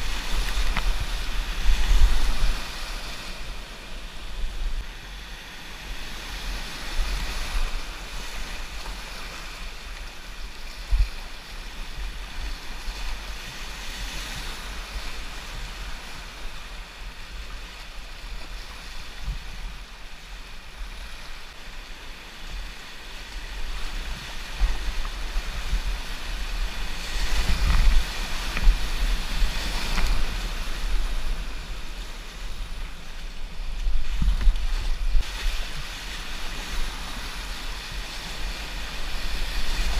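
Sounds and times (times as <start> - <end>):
wind buffeting microphone: 0.0 - 4.9, 23.4 - 39.9.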